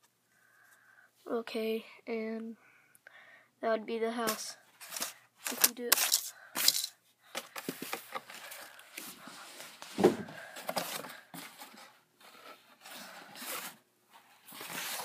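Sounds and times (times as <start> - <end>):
thump: 10.0 - 10.3.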